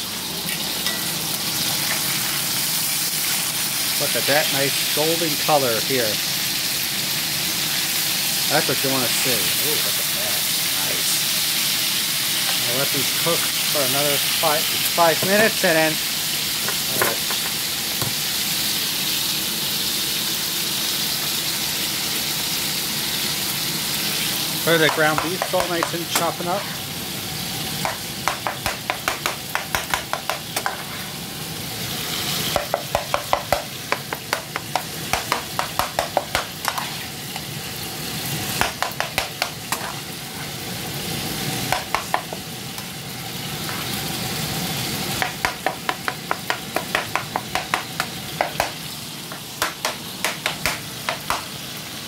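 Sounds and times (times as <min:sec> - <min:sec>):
meat sizzling in a frying pan: 0:00.0 - 0:52.0
spoon tapping and scraping pan: 0:24.8 - 0:26.4, 0:27.8 - 0:31.0, 0:32.5 - 0:37.0, 0:38.6 - 0:40.0, 0:41.7 - 0:42.4, 0:45.2 - 0:51.5.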